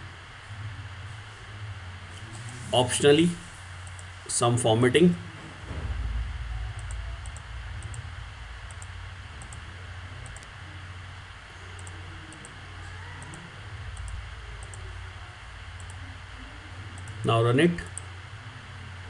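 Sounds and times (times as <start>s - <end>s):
steady low hum: 0.0s - 19.0s
computer mouse clicking: 3.8s - 4.1s, 8.7s - 9.6s, 10.2s - 10.5s, 11.8s - 12.6s, 14.0s - 14.9s, 15.8s - 16.0s.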